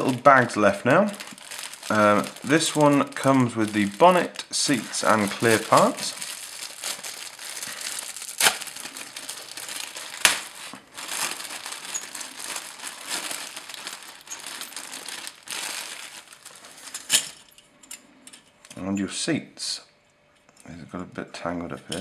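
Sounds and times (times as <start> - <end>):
plastic bag crinkling: 0.0 - 17.5.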